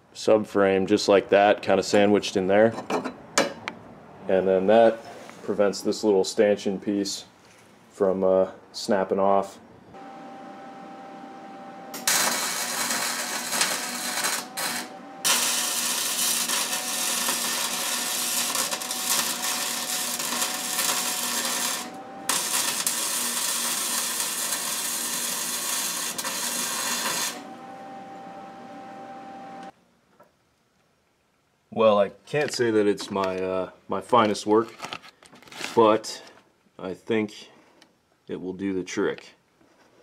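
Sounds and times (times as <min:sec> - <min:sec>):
welding arc crackling: 0:11.9 - 0:27.4.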